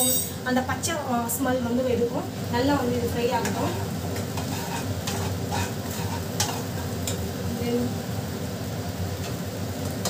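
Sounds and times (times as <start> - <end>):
paste sizzling in a pan: 1.9 - 10.0
spatula tapping and scraping pan: 3.4 - 7.2.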